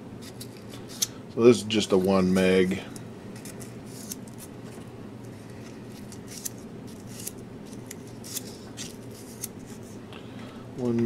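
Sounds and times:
steady low hum: 0.0 - 11.0
fingers bending wire leads: 2.9 - 9.8.

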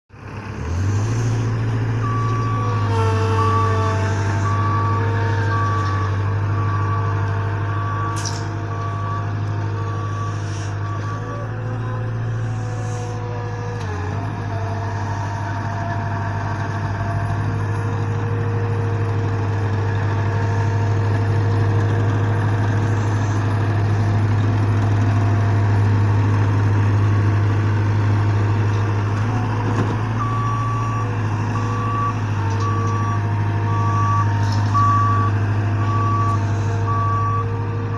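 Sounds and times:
soil compactor engine humming: 0.1 - 37.9
reversing alarm beeping: 1.4 - 14.0, 29.7 - 37.9.

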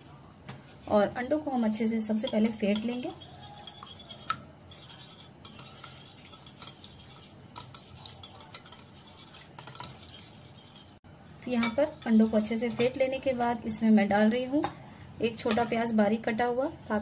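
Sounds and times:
whisk clicking against bowl: 2.2 - 10.9.

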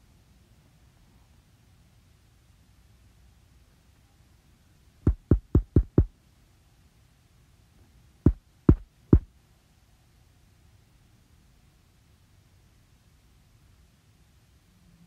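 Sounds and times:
shoe stomping on floor: 5.1 - 6.1, 8.3 - 8.8.

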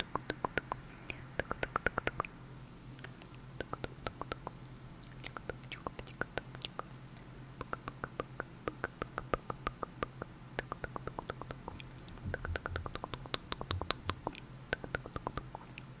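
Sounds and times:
tongue and lip clicks: 0.0 - 15.9.

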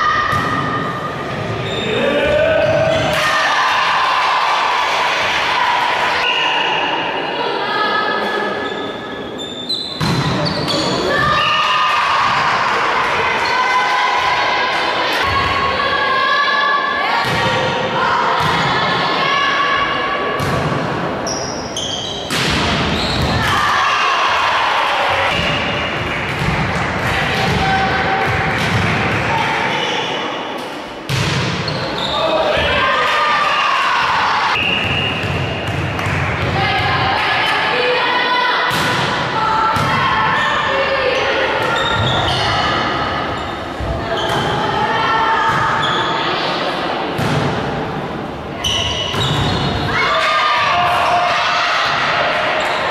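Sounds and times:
volleyball hits echoing: 0.2 - 1.5, 10.0 - 11.3, 20.4 - 21.2, 22.2 - 24.1, 25.1 - 29.4, 30.6 - 31.8, 34.0 - 37.6, 38.7 - 40.1, 47.1 - 47.9.

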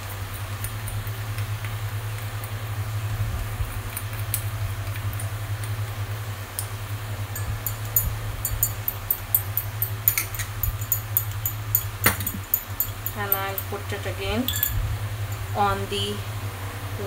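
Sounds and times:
low hum: 0.0 - 17.0
spatula clicking on glass: 6.5 - 13.8, 14.5 - 15.5.

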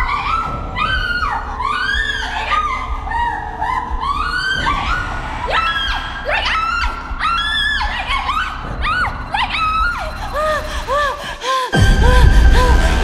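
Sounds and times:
low rumbling drone: 0.0 - 13.0.

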